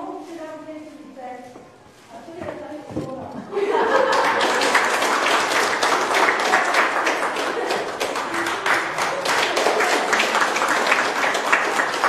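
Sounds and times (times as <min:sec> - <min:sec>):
people applauding: 0:03.8 - 0:12.0.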